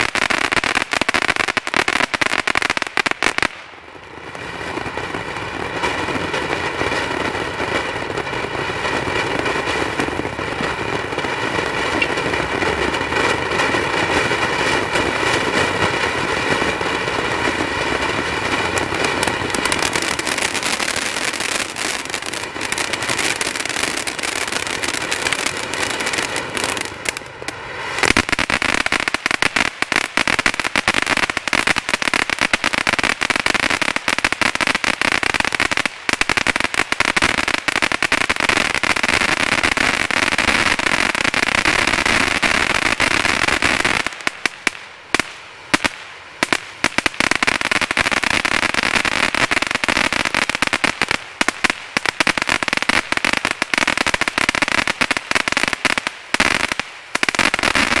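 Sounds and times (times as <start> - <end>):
firework fountain hissing: 0.0 - 58.0
firework rapid crackling: 0.0 - 58.0.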